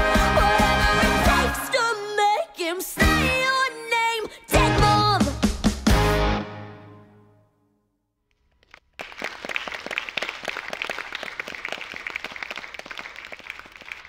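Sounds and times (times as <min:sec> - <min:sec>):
applause: 0:08.4 - 0:14.0.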